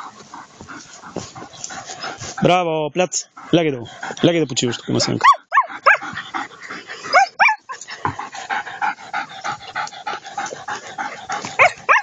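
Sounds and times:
puppy whimpering: 4.9 - 6.1, 7.1 - 7.8
puppy yips: 5.2 - 6.0, 11.6 - 12.0.

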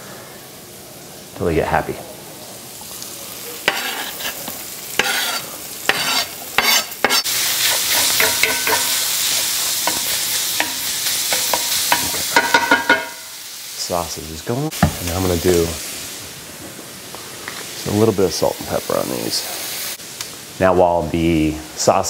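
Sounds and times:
frying sizzle: 0.0 - 22.0
utensil knocking and scraping: 5.0 - 13.2.

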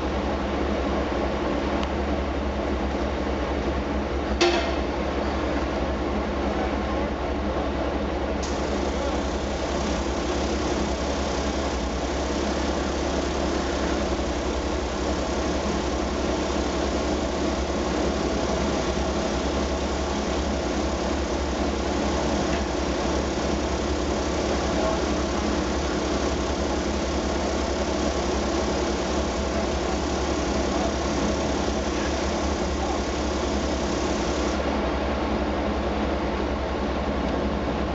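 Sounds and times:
vacuum truck engine droning: 8.4 - 34.6.

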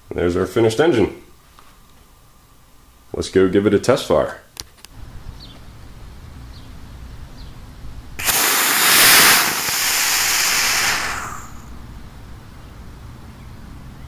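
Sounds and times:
rocket motor hissing: 8.2 - 12.4.

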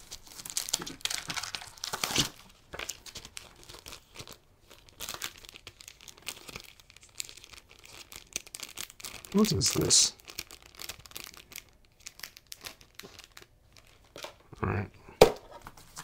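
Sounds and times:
plastic bag and paper crinkling: 0.0 - 14.5.

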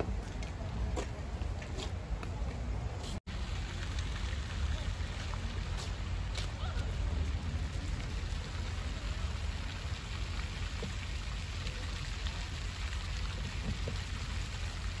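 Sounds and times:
fountain water splashing: 3.3 - 15.0.

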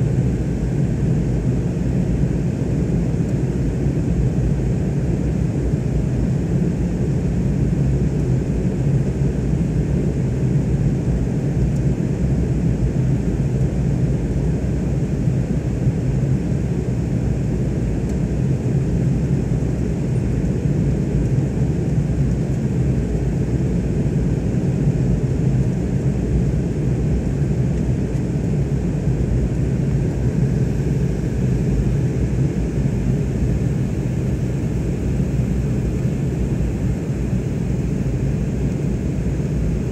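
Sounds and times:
airliner cabin rumble: 23.2 - 39.9.

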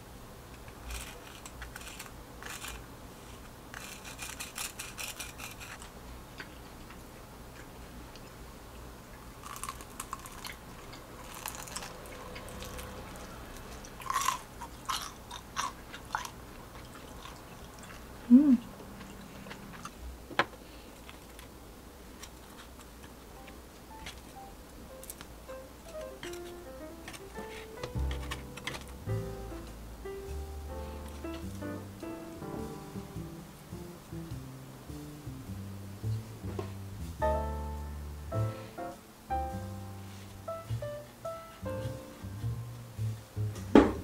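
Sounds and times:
crunching crispy dumplings: 0.5 - 8.4, 9.1 - 20.0, 20.6 - 29.7.

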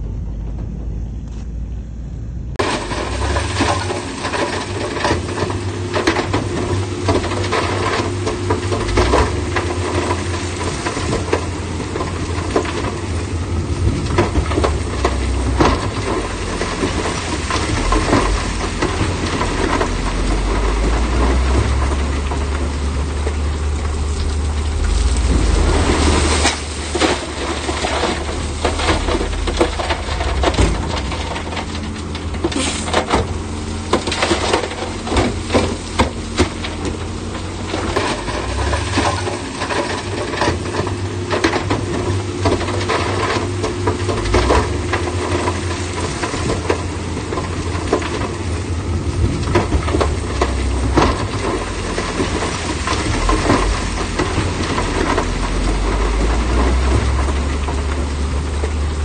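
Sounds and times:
diesel machinery running: 0.0 - 59.0
loud rushing noise: 13.5 - 34.4
metallic clanks and knocks: 13.8 - 48.4
stone scraping and clattering: 14.0 - 41.7.

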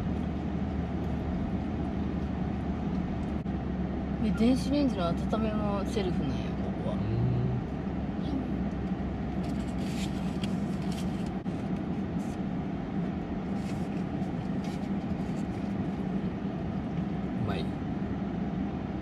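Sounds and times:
low machine hum: 0.0 - 19.0
rustles: 9.3 - 12.4.

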